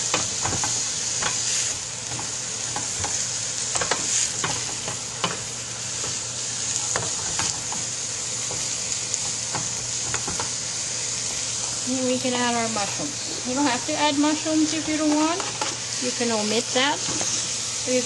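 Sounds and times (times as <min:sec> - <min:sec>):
food sizzling in a pan: 0:00.0 - 0:18.0.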